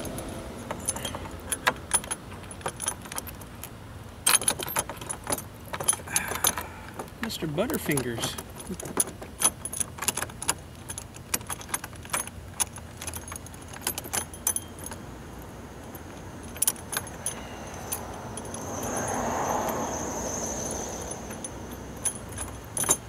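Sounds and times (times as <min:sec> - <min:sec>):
metal bolt and nut rattling: 0:00.0 - 0:23.0
rushing noise: 0:15.7 - 0:22.8.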